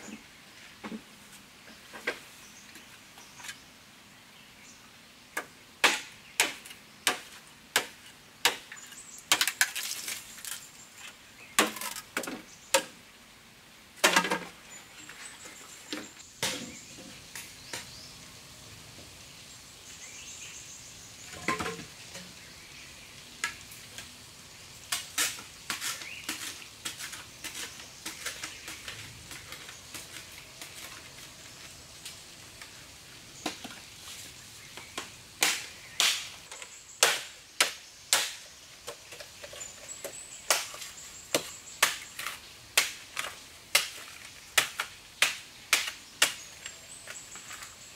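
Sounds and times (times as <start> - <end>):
machete striking bamboo: 5.8 - 8.7, 35.4 - 38.5, 42.8 - 44.0, 44.6 - 46.4.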